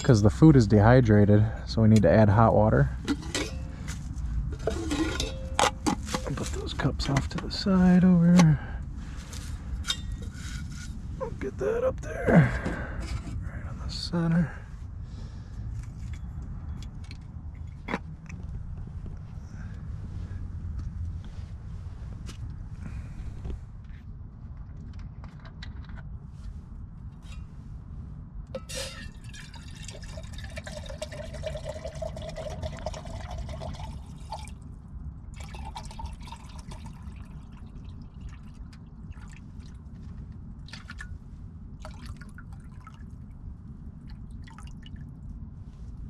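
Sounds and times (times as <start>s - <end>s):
low steady rumble: 0.0s - 46.0s
water pouring into pot: 28.9s - 34.5s, 35.4s - 38.4s.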